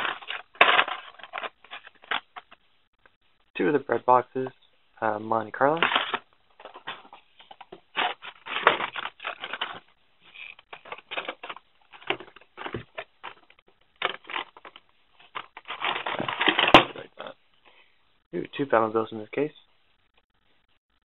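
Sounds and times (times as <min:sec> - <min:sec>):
card and plastic rustling: 0:00.0 - 0:02.6, 0:05.7 - 0:17.1.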